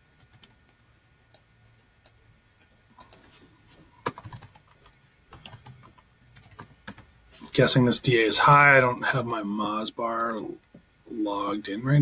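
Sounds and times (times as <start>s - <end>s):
faint keyboard typing: 0.1s - 7.1s.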